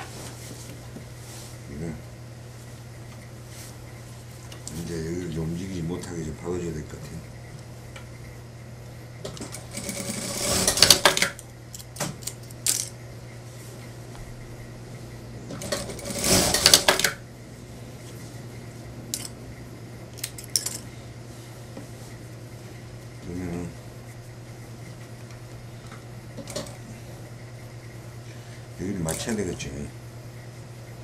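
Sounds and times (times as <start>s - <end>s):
steady low hum: 0.0s - 31.0s
sewing machine stitching: 9.4s - 11.3s, 15.6s - 17.1s.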